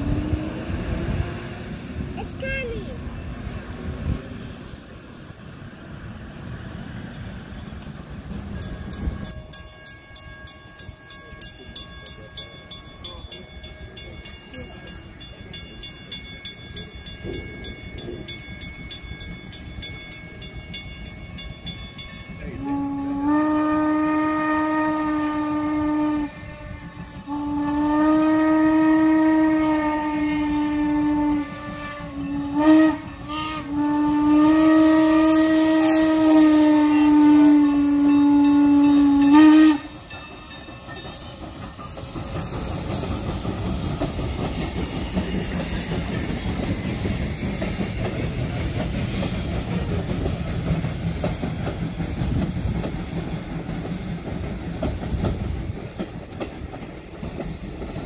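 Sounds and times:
steam locomotive whistle blasts: 0:22.4 - 0:43.4.

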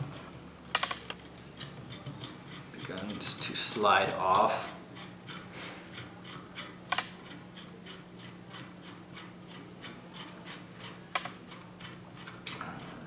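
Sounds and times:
sharp metal clicks: 0:00.7 - 0:02.4, 0:06.2 - 0:07.3, 0:10.3 - 0:12.6
bolt scraping as it turns: 0:00.7 - 0:13.0.

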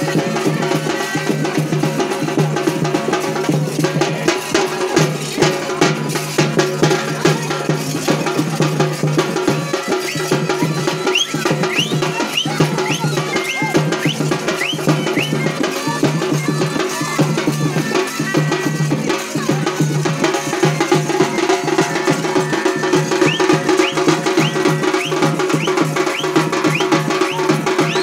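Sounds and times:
fast hand drumming: 0:00.0 - 0:28.0.

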